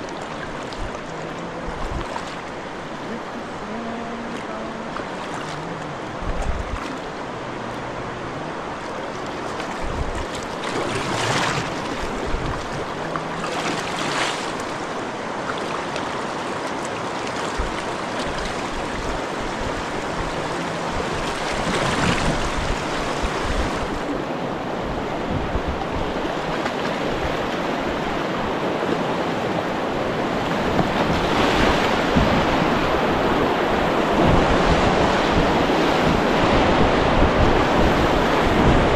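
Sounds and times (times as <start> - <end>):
kayak paddle splashes: 0.0 - 24.1
rushing river water: 0.0 - 38.9.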